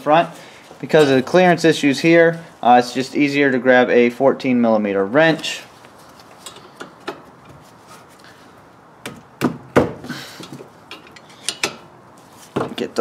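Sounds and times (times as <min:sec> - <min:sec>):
metal wrench clicking and knocking: 0:10.9 - 0:11.8.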